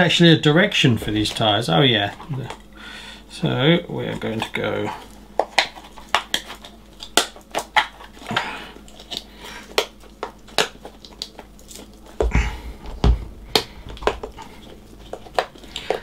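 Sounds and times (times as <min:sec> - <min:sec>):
rubber rubbing: 0:12.2 - 0:16.0.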